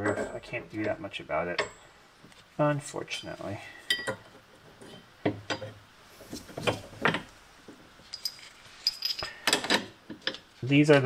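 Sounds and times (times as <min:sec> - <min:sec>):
metallic ring: 0:03.9 - 0:04.2, 0:08.0 - 0:09.4
metal parts knocking and clinking: 0:08.0 - 0:10.4.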